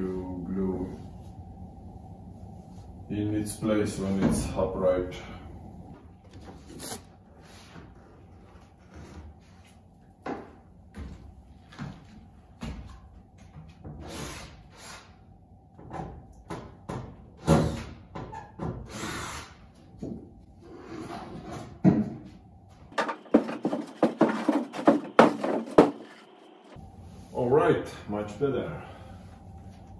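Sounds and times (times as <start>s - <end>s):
plywood scraping: 22.9s - 26.4s
wooden knocks and bumps: 23.0s - 26.1s.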